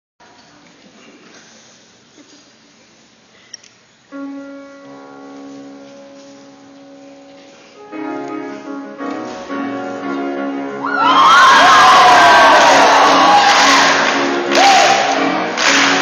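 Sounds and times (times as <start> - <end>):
keyboard playing chords: 4.1 - 16.0.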